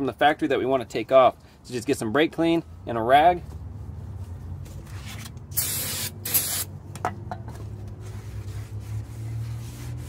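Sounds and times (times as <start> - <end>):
aerosol spray hissing: 5.6 - 6.7.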